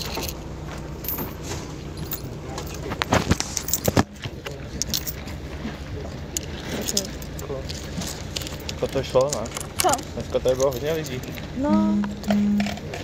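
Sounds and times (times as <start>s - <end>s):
objects clattering and knocking: 6.5s - 11.5s.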